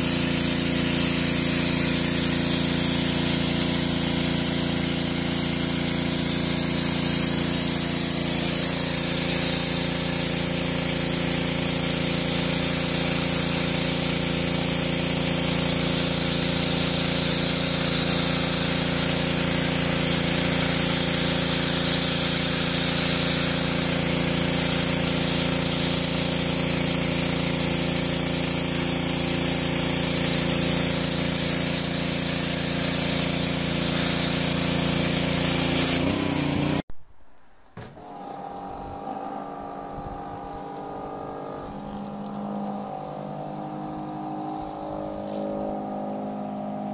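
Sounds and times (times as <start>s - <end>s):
pressure washer pump hum: 0.0s - 36.8s, 37.8s - 46.9s
spray jet hissing on stone: 0.0s - 36.8s, 37.8s - 46.9s.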